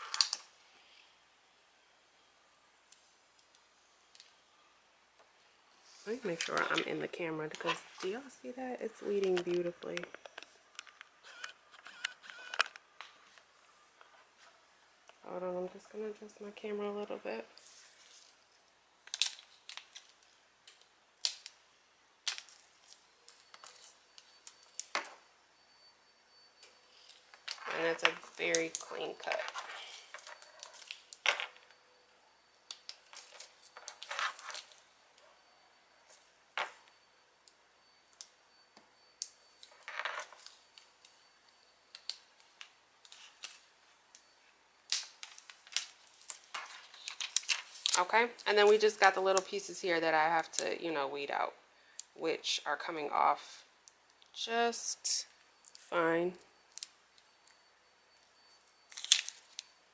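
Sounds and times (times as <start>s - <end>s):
vinyl peeling clicks and crackles: 0.0s - 0.5s, 19.0s - 21.6s, 41.9s - 44.3s, 44.9s - 48.0s, 58.9s - 59.7s
vinyl ticking and crinkling: 6.1s - 25.0s, 26.6s - 49.8s.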